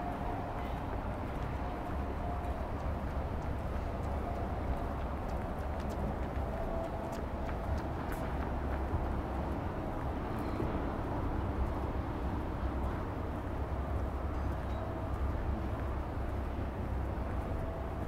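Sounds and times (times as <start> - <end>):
city background rumble: 0.0 - 18.0.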